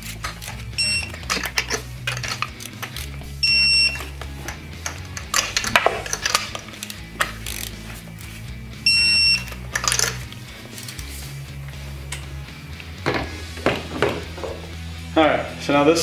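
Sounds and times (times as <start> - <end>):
metallic wrench clicks: 0.2 - 3.2, 4.8 - 7.8
torque wrench beeping: 0.7 - 4.2, 8.8 - 10.2.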